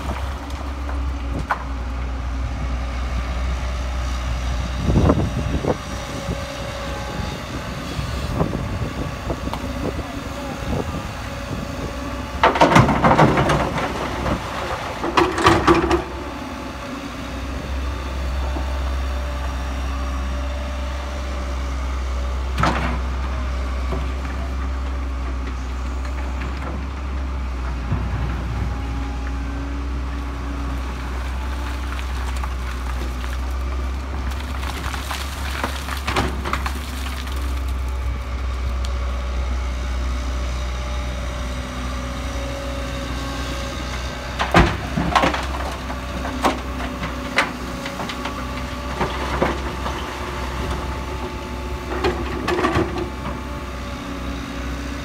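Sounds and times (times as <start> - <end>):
diesel engine running: 0.0 - 55.0
excavator bucket clanking: 12.3 - 16.3
rock crashing into truck bed: 12.4 - 16.1, 34.2 - 38.0.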